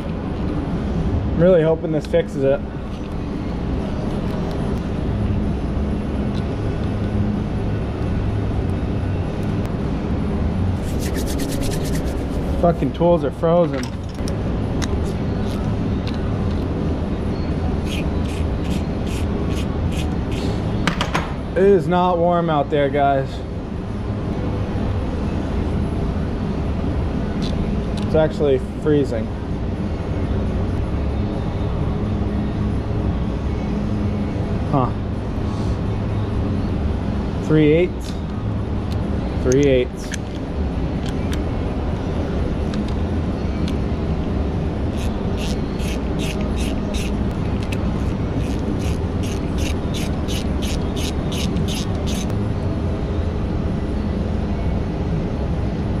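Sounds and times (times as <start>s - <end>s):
steady low hum: 0.0s - 56.0s
ratchet wrench clicking: 17.8s - 20.6s, 44.9s - 52.4s.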